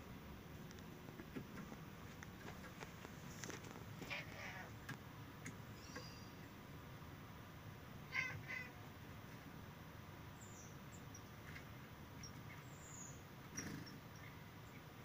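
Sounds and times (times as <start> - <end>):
small birds chirping: 2.2 - 6.7, 10.2 - 15.0
harsh bird calls: 5.7 - 6.5.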